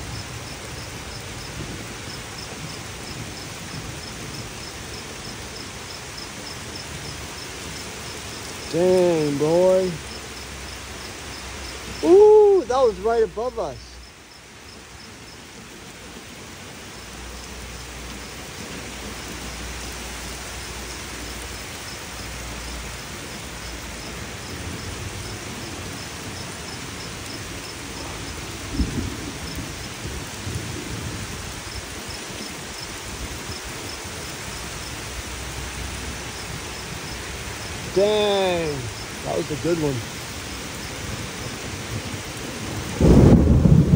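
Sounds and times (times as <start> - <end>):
low thunder rumble: 0.0 - 7.8, 23.2 - 33.9, 40.1 - 43.9
heavy rain falling: 0.0 - 43.9
sharp thunder crack: 28.6 - 31.2, 41.9 - 43.9.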